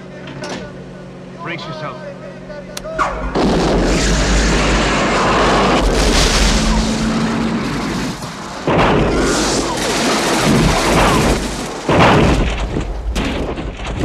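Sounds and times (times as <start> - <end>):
rocket booster blast and rush: 2.9 - 14.0.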